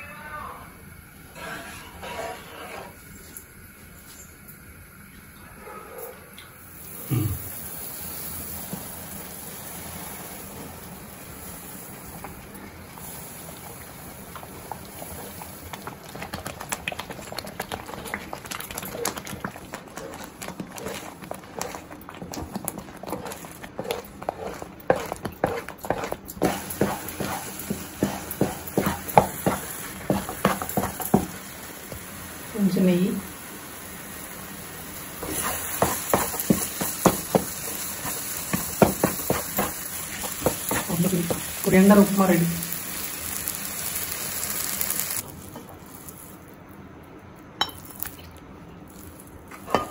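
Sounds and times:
low sizzle: 0:00.0 - 0:49.9
spatula scraping a frying pan: 0:01.4 - 0:03.0, 0:17.2 - 0:31.3, 0:35.2 - 0:41.6
water boiling in a frying pan: 0:06.4 - 0:46.6.

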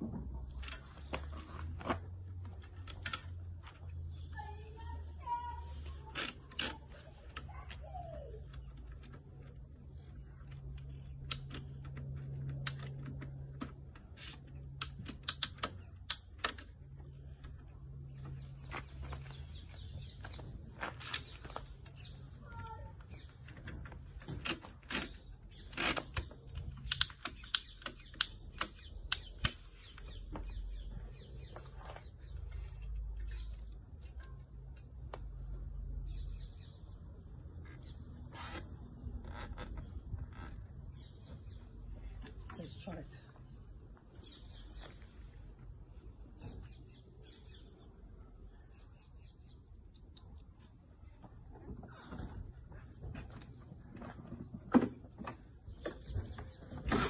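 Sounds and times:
plastic and metal clicks and rattles: 0:10.4 - 0:16.9, 0:23.5 - 0:29.7.

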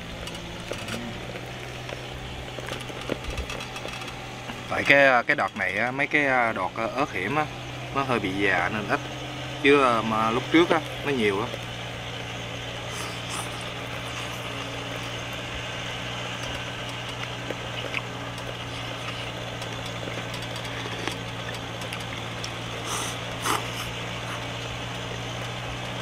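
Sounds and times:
mud pump engine drone: 0:00.0 - 0:26.0.

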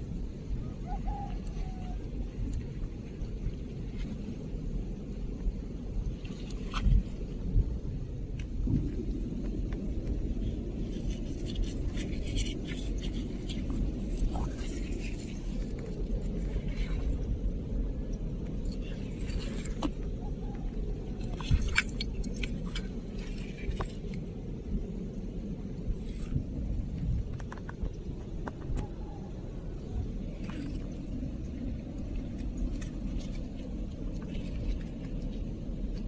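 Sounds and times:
low rumble: 0:00.0 - 0:36.0
seashells clicking and scraping: 0:09.5 - 0:17.2, 0:18.5 - 0:24.3, 0:27.2 - 0:28.8.

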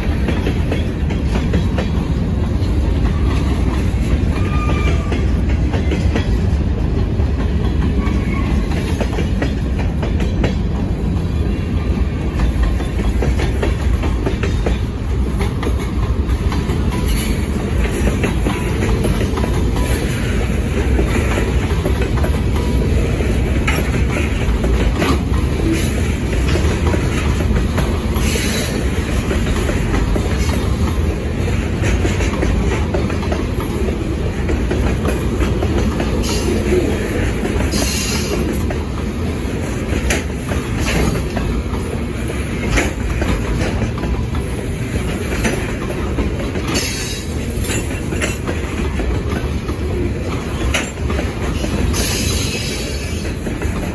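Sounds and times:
clickety-clack over rail joints: 0:00.0 - 0:53.9
train wheels rumbling on rails: 0:00.0 - 0:53.9
high-pitched wheel squeals: 0:04.3 - 0:05.3.

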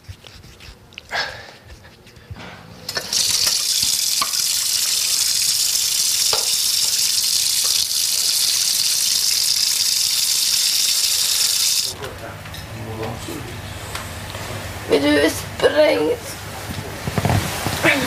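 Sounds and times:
water pouring from tap: 0:02.9 - 0:12.0.

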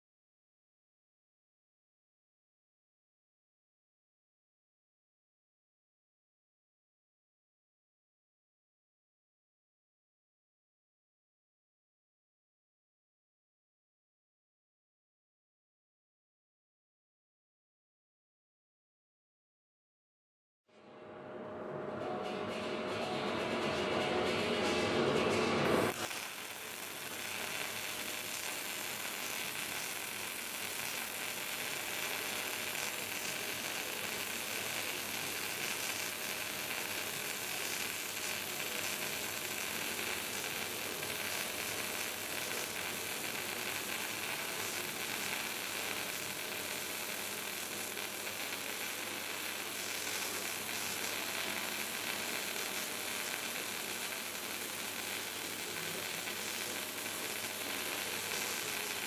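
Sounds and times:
welding arc crackling and sizzling: 0:25.2 - 0:59.0.

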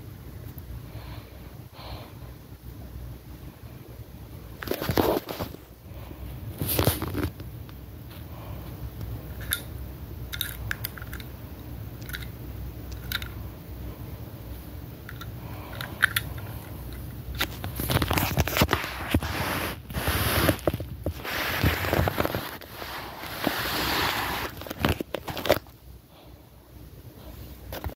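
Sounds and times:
rustling and scraping over cloth: 0:04.6 - 0:07.5, 0:17.3 - 0:25.7.

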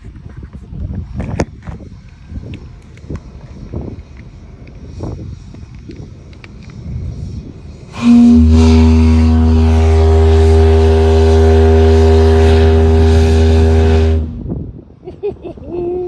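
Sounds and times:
deep ship's whistle blast: 0:07.9 - 0:14.5.

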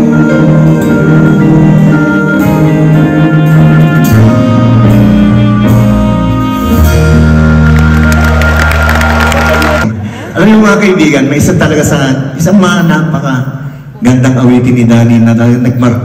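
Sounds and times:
live band playing: 0:00.0 - 0:10.4.

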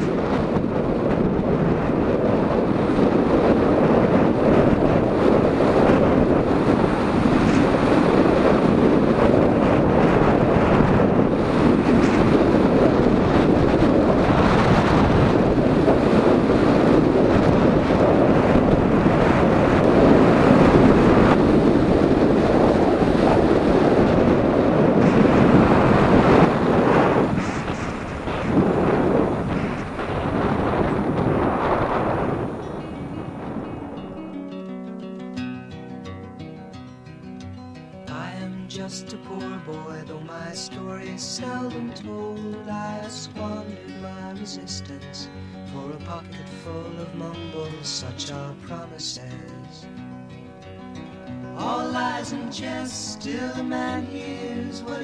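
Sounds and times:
wind buffeting microphone: 0:00.0 - 0:34.5.

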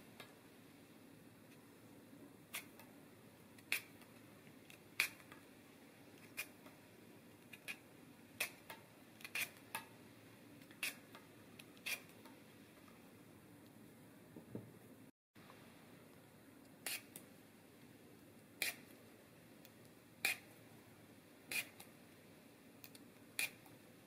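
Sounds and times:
peeler scraping lemon peel: 0:02.5 - 0:02.8, 0:03.6 - 0:04.0, 0:04.7 - 0:05.3, 0:06.2 - 0:06.6, 0:07.5 - 0:07.8, 0:08.4 - 0:09.8, 0:10.7 - 0:12.2, 0:16.8 - 0:17.2, 0:18.6 - 0:18.9, 0:20.2 - 0:20.5, 0:21.5 - 0:21.9, 0:22.9 - 0:23.7.

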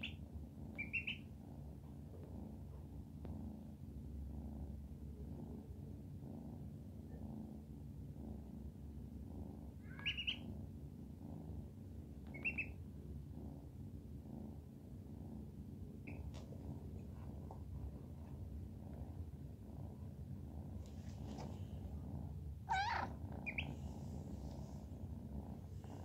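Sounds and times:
kitten purring: 0:00.0 - 0:26.0
duckling peeping: 0:00.8 - 0:01.2, 0:10.0 - 0:10.4, 0:12.3 - 0:12.7, 0:22.7 - 0:23.7.

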